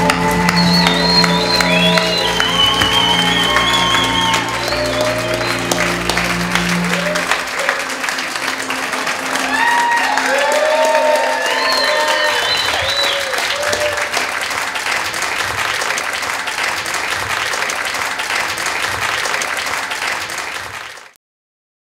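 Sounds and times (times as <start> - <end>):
guests applauding: 0.0 - 21.2.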